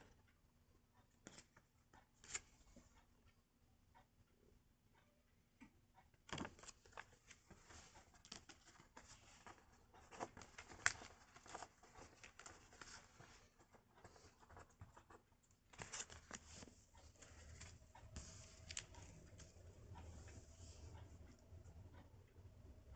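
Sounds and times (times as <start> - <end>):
paper rustling: 6.3 - 19.5.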